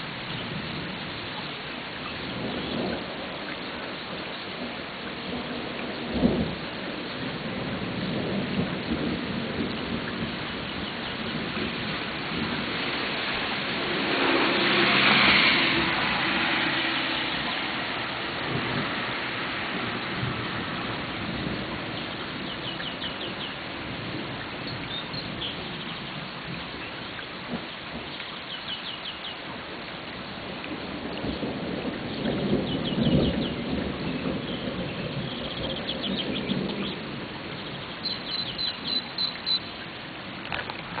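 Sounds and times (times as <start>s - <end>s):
steady rain: 0.0s - 41.0s
thunder rumble: 2.1s - 28.3s, 30.2s - 41.0s
rushing swell: 12.9s - 19.7s
songbird chirping: 22.0s - 23.6s, 24.6s - 29.5s, 32.2s - 39.9s.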